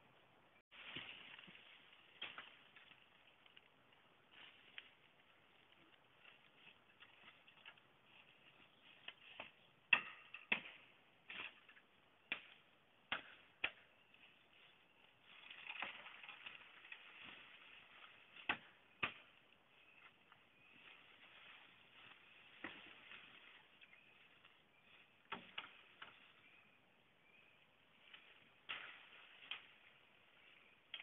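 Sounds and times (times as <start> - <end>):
leaf litter rustling: 0.7 - 9.4, 14.6 - 18.4.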